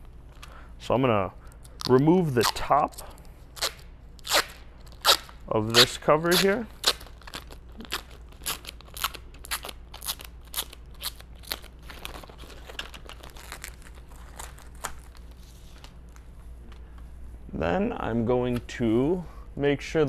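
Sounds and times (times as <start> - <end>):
plastic wrap crinkling: 3.5 - 16.8.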